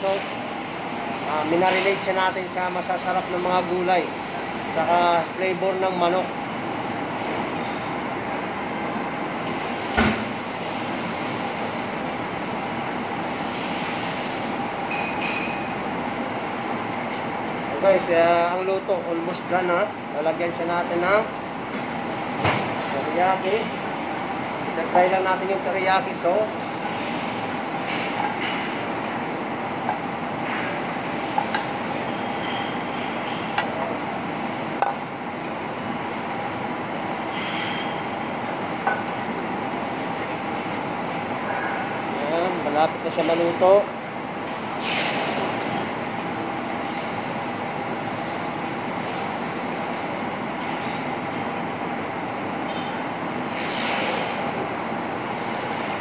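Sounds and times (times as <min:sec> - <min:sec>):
meat sizzling on grill: 0:09.3 - 0:14.6.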